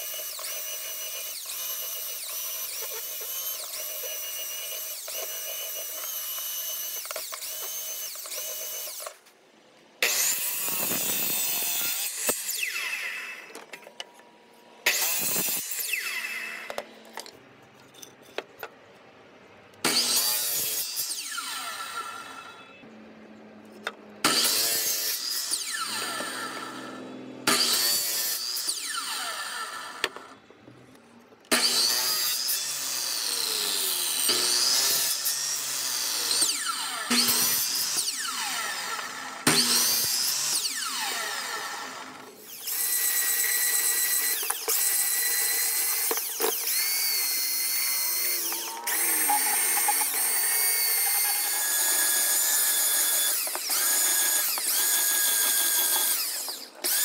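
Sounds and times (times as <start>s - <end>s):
power tool high whine: 0.0s - 9.1s, 10.0s - 13.7s, 14.8s - 16.8s, 19.8s - 22.8s, 24.2s - 30.4s, 31.5s - 57.0s
miter saw cutting wood: 0.0s - 9.2s, 10.0s - 13.7s, 14.8s - 17.0s, 19.8s - 22.8s, 24.2s - 30.4s, 31.5s - 57.0s
electric sander: 43.1s - 57.0s.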